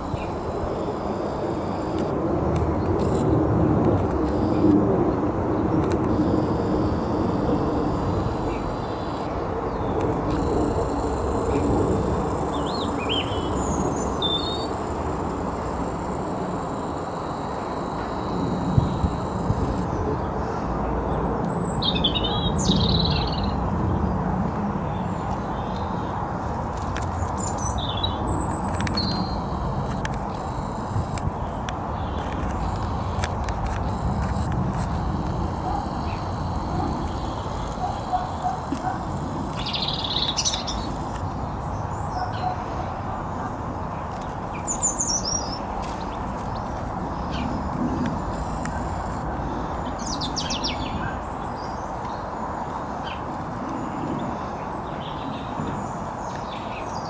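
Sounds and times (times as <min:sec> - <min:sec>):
small birds chirping: 0:05.7 - 0:23.6, 0:26.8 - 0:43.0, 0:43.9 - 0:57.0.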